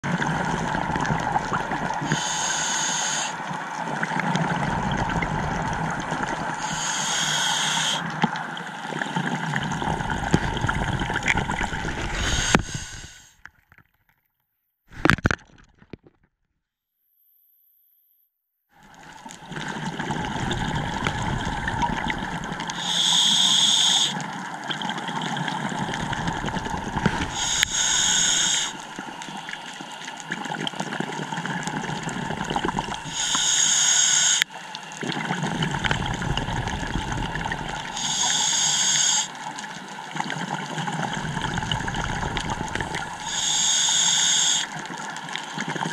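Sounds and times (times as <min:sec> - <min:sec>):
exhaled bubbles gurgling: 0:00.0 - 0:13.2, 0:18.8 - 0:45.9
regulator inhale hiss: 0:02.0 - 0:03.5, 0:06.5 - 0:08.1, 0:12.0 - 0:13.4, 0:22.7 - 0:24.2, 0:27.0 - 0:30.3, 0:32.9 - 0:34.8, 0:37.8 - 0:39.4, 0:42.6 - 0:45.9.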